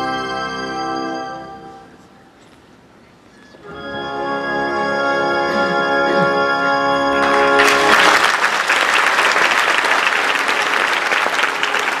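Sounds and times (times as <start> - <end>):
orchestra holding chord: 3.7 - 8.3
audience applause: 7.2 - 12.0.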